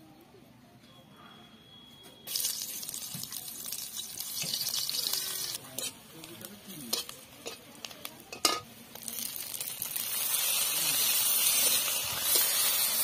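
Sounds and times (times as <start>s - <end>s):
onions sizzling in hot oil: 2.3s - 13.0s
metal spatula scraping pan: 4.5s - 6.0s.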